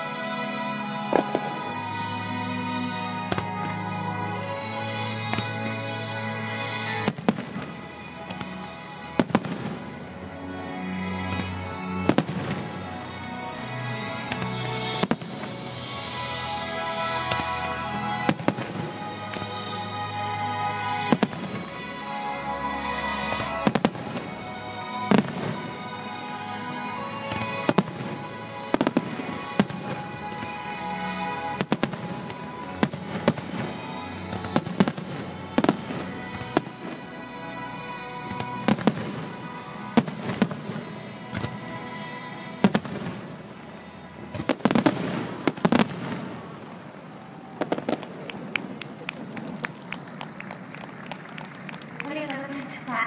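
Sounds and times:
music with sustained notes: 0:00.0 - 0:53.0
fireworks bursting: 0:00.9 - 0:02.6, 0:06.8 - 0:10.4, 0:11.2 - 0:13.1, 0:14.0 - 0:37.3, 0:38.2 - 0:41.8, 0:42.4 - 0:53.0.

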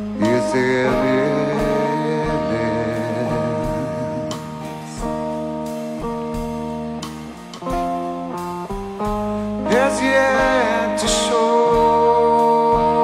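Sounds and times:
man singing: 0:00.0 - 0:05.2, 0:09.6 - 0:13.0
acoustic guitars playing: 0:00.0 - 0:13.0.

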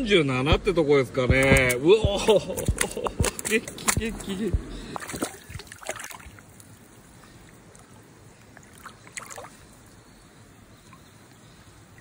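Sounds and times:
fish splashing in shallow water: 0:01.4 - 0:10.2.

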